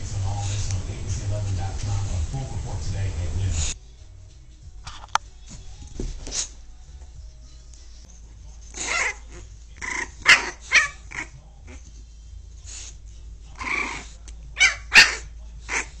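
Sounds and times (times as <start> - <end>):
puppy barking and yipping: 8.8 - 11.8, 13.6 - 16.0.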